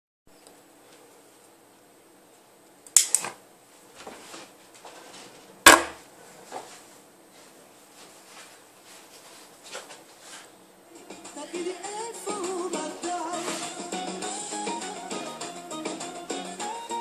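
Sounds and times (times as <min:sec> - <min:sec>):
faint rustling: 0:03.7 - 0:11.4.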